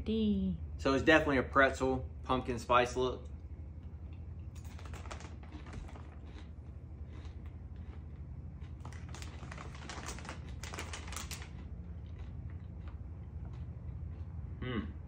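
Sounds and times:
plastic snack bag crinkling: 0:04.6 - 0:13.6.

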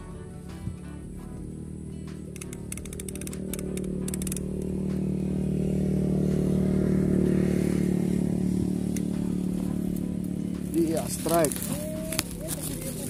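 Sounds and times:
motorcycle engine running: 0:00.0 - 0:13.0
rapid high clicks: 0:02.3 - 0:04.7.

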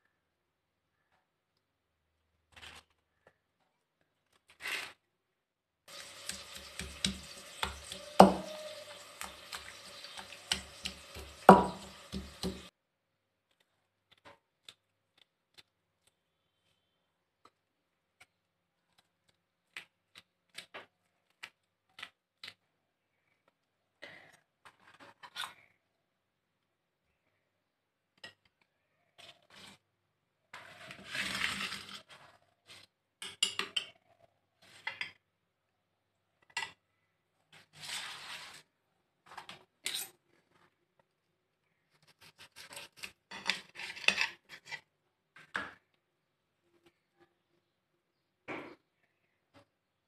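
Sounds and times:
pestle grinding in mortar: 0:05.9 - 0:12.7
pestle knocking: 0:06.0 - 0:09.4, 0:10.4 - 0:12.7.

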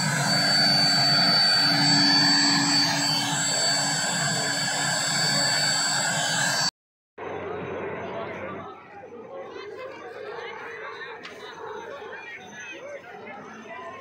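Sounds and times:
helicopter turbine engine running: 0:00.0 - 0:06.7.

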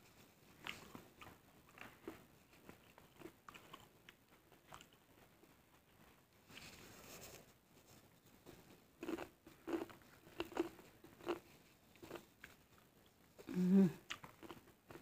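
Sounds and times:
person chewing food: 0:00.5 - 0:06.7, 0:08.5 - 0:15.0
person humming mm: 0:13.4 - 0:14.1.

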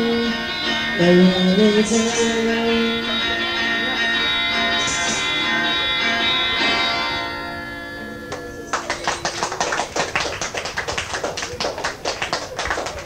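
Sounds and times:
live song chord ringing: 0:00.0 - 0:11.3
audience clapping: 0:08.3 - 0:13.0.

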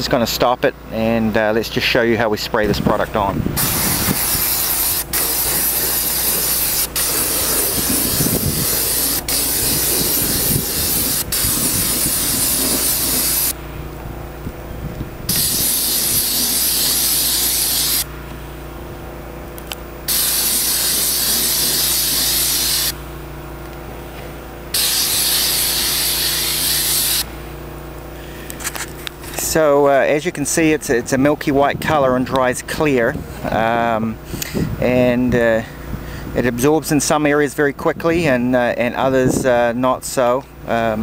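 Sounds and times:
steady low hum: 0:00.0 - 0:41.0
spray wand hissing: 0:03.6 - 0:13.6, 0:15.3 - 0:18.1, 0:20.1 - 0:23.0, 0:24.7 - 0:27.3.

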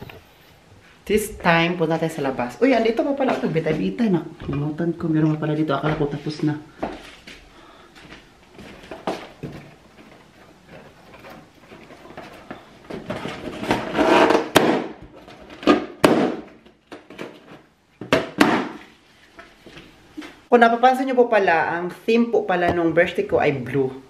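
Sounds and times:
rustling balloons: 0:05.2 - 0:20.5
balloons popping: 0:13.6 - 0:16.6.

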